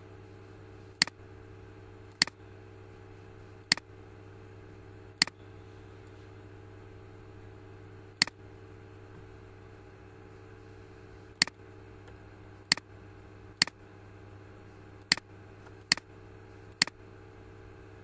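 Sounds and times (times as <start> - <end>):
low background hum: 0.0 - 18.0
computer mouse clicks: 3.7 - 3.9, 15.0 - 15.2, 15.9 - 16.1.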